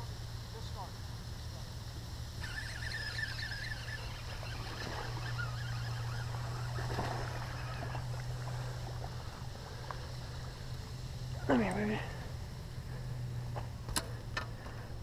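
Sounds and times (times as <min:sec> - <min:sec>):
steady low hum: 0:00.0 - 0:15.0
fish splashing at water surface: 0:02.4 - 0:10.8.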